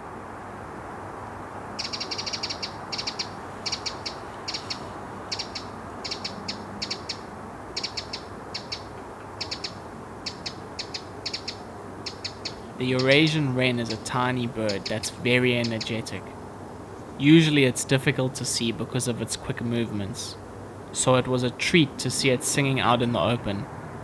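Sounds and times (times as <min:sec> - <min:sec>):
steady low hiss: 0:00.0 - 0:24.0
bird ticking calls: 0:01.8 - 0:16.3.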